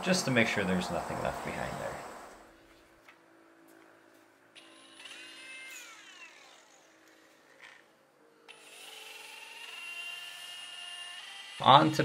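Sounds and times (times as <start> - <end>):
electric polisher motor whining: 4.6 - 12.0.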